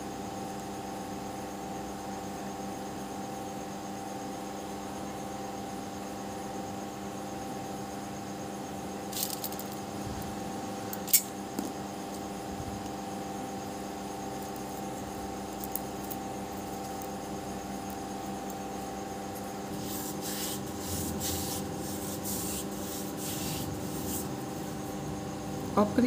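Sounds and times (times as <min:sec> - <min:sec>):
steady tonal hum: 0:08.7 - 0:26.0.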